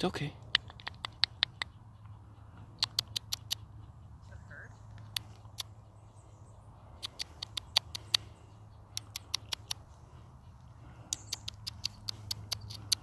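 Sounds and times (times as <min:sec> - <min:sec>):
sharp brief clicks: 0:02.8 - 0:03.6, 0:07.0 - 0:08.3, 0:08.9 - 0:09.8, 0:11.1 - 0:13.0.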